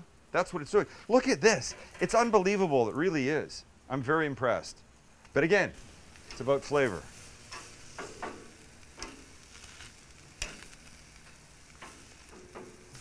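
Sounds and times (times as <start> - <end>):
sharp pops: 5.2 - 13.0
meat sizzling on a grill: 5.8 - 13.0.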